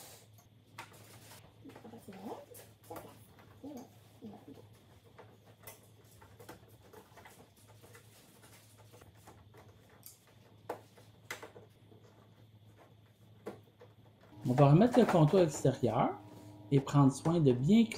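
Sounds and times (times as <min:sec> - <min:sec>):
low steady hum: 0:12.0 - 0:17.9.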